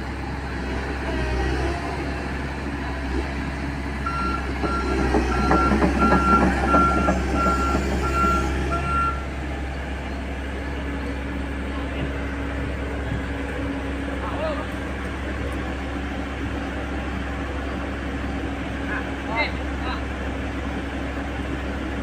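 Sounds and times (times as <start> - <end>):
diesel engine running: 0.0 - 22.0
travel alarm beeping: 4.1 - 9.3
track clatter: 4.1 - 22.0.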